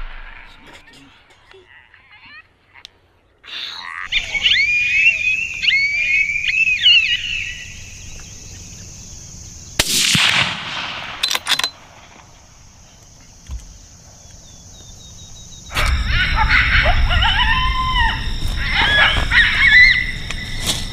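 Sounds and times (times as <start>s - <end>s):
coyotes yipping and howling: 3.5s - 9.8s, 12.7s - 20.9s
rifle shot with echo: 9.8s - 12.2s
sharp cracks: 9.8s - 12.7s.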